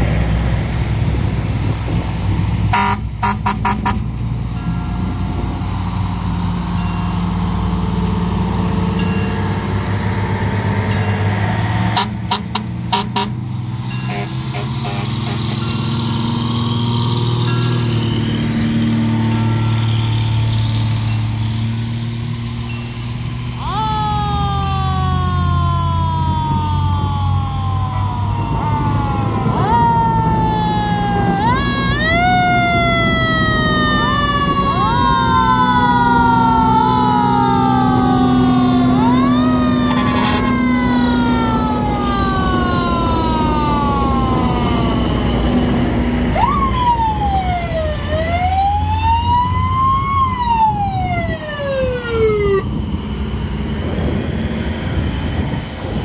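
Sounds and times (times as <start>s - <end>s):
fire truck engines running: 0.0s - 56.0s
fire truck sirens wailing: 0.0s - 56.0s.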